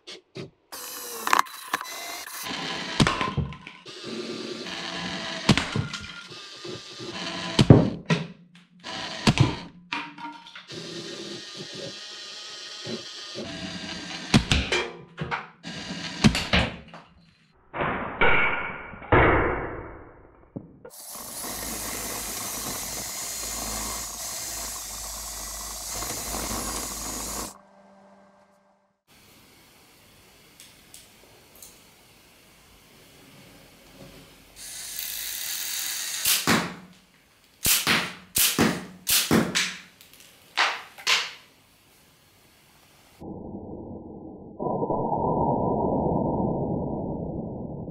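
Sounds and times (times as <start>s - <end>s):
toy motor whirring: 10.7s - 14.2s, 20.9s - 27.6s, 34.6s - 36.5s
toy gun firing snaps: 37.6s - 39.7s.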